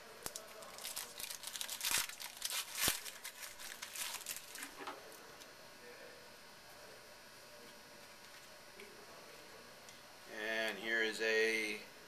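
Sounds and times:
foil wrapper tearing and crinkling: 0.2 - 4.8.

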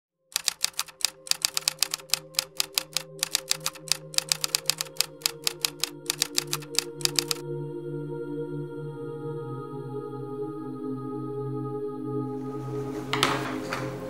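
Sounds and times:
typewriter keys clacking: 0.4 - 7.4.

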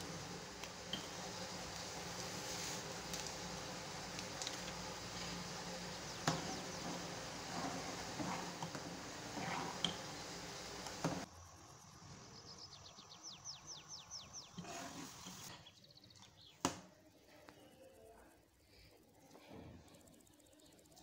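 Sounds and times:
ladle stirring milk in pan: 0.0 - 11.3, 14.6 - 15.6.

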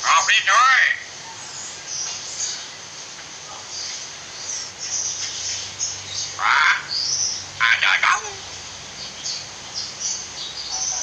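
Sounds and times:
myna call: 7.6 - 8.5.

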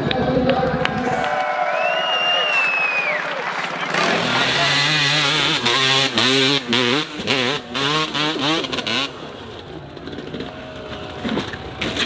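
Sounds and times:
dirt bike engine revving: 3.8 - 12.0.

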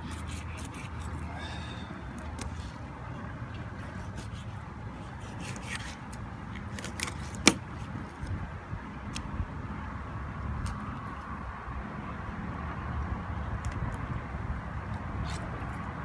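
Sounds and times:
knife clicking and scraping on bones: 0.1 - 1.2.

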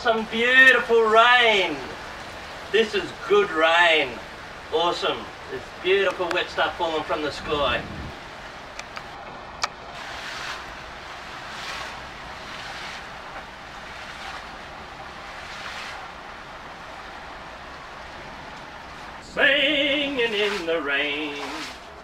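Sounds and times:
rain hiss: 0.0 - 22.0
feet splashing through water: 9.9 - 17.4.

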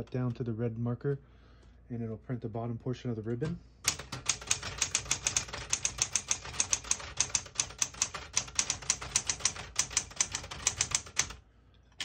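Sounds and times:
manual typewriter typing: 3.9 - 11.4.

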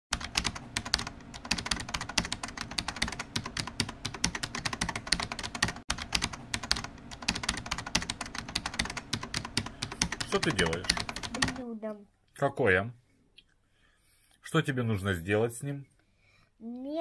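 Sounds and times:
keyboard typing clicks: 0.1 - 11.6.

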